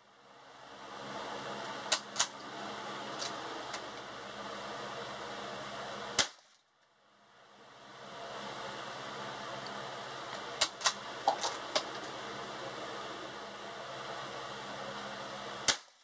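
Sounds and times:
rifle shots cracking: 15.7s - 16.0s.

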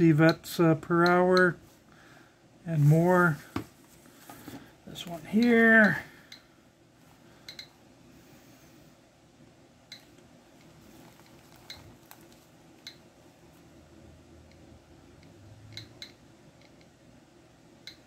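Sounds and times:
low steady hum: 0.0s - 18.0s
geiger counter clicks: 0.2s - 1.6s, 17.8s - 18.0s.

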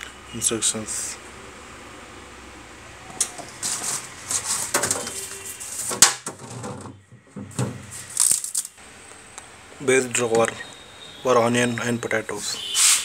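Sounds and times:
paper crinkling and rustling: 3.3s - 6.9s.

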